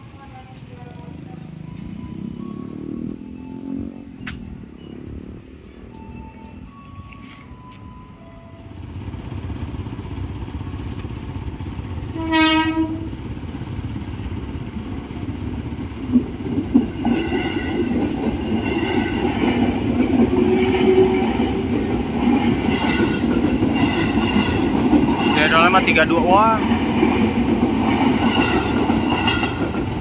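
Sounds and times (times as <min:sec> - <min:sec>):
train rumbling past: 0:00.0 - 0:30.0
train horn blast: 0:12.1 - 0:13.3, 0:20.4 - 0:21.5
wheels clacking over rail joints: 0:14.1 - 0:30.0.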